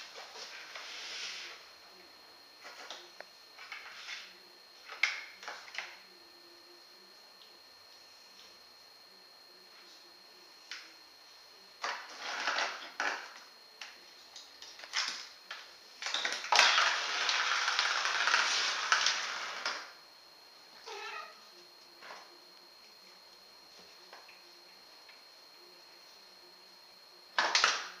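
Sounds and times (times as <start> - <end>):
cat scuffling on tiled floor: 0.0 - 1.6.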